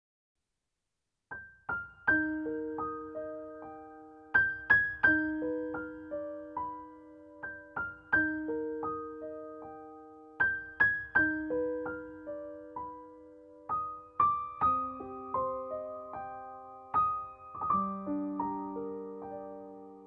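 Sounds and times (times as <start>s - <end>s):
slow keyboard melody: 1.8s - 20.0s.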